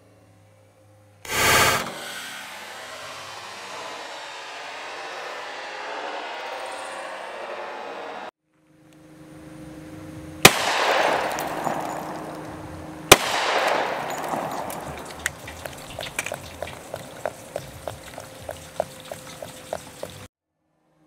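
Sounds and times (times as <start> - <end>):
gunshots: 10.4 - 12.4, 13.1 - 15.4
small ticks and drips: 14.9 - 20.3.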